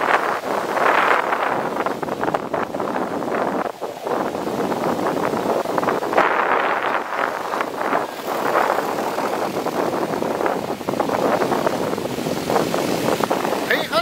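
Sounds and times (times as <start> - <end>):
waves breaking on sand: 0.0 - 14.0.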